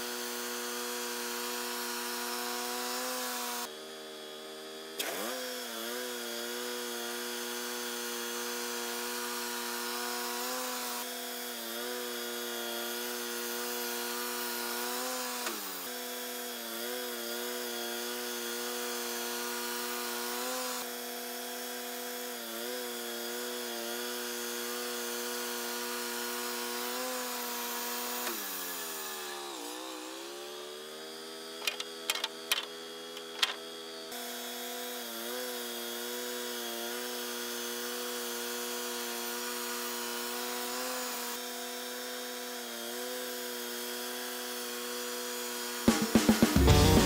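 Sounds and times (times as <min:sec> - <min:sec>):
sawmill engine running: 0:27.5 - 0:34.0, 0:45.7 - 0:47.0
knocks of boards being handled: 0:31.6 - 0:33.6.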